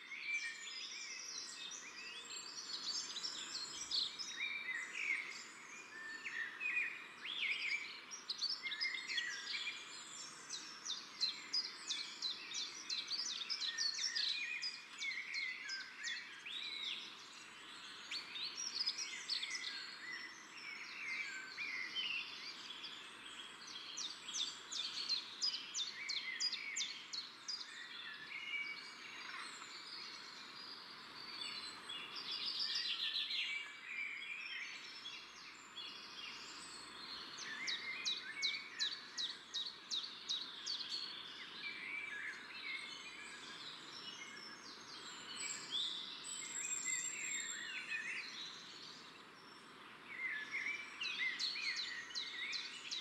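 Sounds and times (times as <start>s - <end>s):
small birds chirping: 0.0s - 53.0s.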